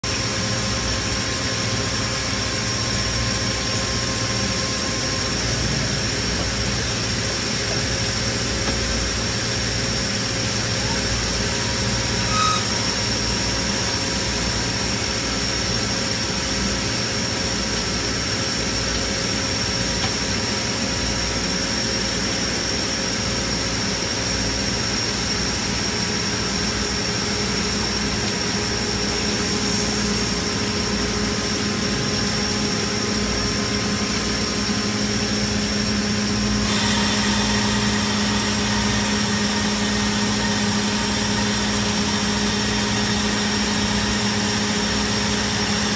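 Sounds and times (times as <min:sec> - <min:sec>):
lathe hum with high whine: 0:00.0 - 0:45.9
coolant spraying hiss: 0:25.6 - 0:45.9.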